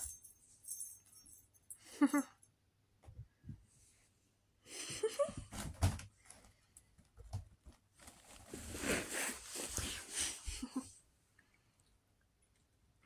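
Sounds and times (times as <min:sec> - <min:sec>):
nylon tunnel rustling: 0:08.0 - 0:10.4.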